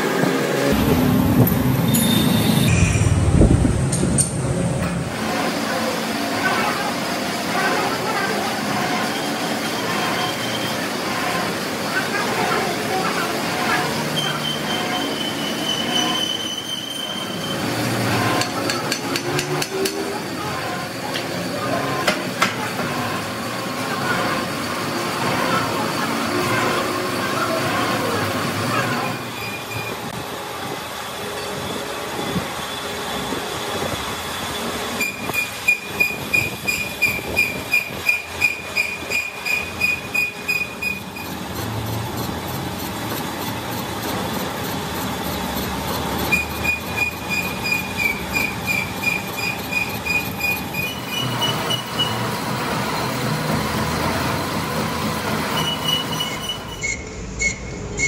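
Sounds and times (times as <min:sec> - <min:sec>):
metal-cutting squeals: 0:01.8 - 0:03.2, 0:05.2 - 0:30.1, 0:31.0 - 0:43.6, 0:44.3 - 0:58.0
metal lathe running: 0:04.2 - 0:58.0.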